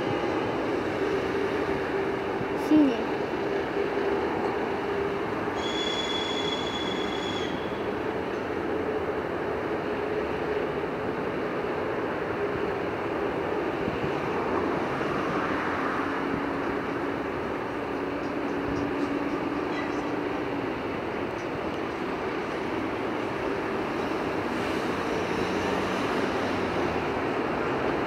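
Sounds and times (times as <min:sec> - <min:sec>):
diesel locomotive engine hum: 0:00.0 - 0:28.0
rail noise: 0:00.0 - 0:28.0
high squeal: 0:05.5 - 0:07.9.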